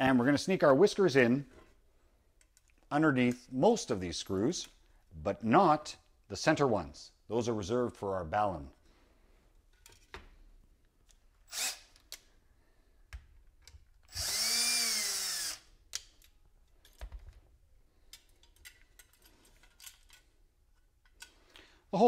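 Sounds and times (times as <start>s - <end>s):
cordless drill whirring: 11.4s - 12.0s, 14.1s - 15.7s.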